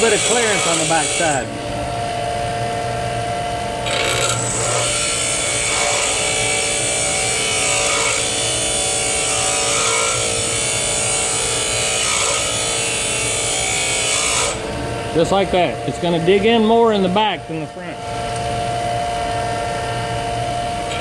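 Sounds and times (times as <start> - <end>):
metal grinding hiss: 0.0 - 1.5
bench grinder motor hum: 0.0 - 21.0.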